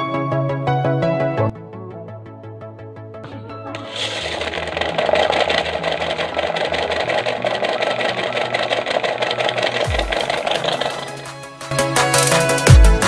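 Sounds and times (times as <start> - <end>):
small electric motor whirring: 3.8 - 11.3.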